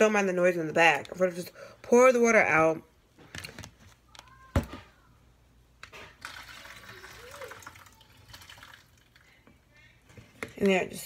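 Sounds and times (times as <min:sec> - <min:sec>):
hot water pouring: 0:06.2 - 0:09.4.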